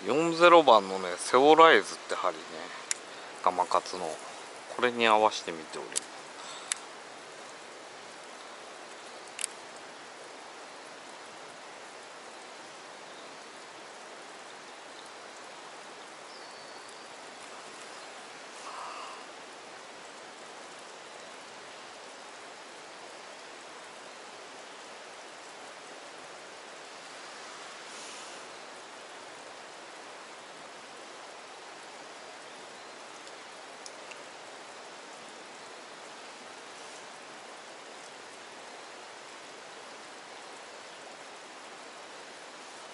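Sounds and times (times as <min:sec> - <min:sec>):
falling water hissing: 0:00.0 - 0:42.9
faint ticks: 0:02.6 - 0:04.2, 0:05.6 - 0:10.0, 0:14.9 - 0:21.5, 0:32.4 - 0:35.6, 0:36.4 - 0:38.2
water hissing: 0:16.3 - 0:20.2, 0:26.3 - 0:29.7.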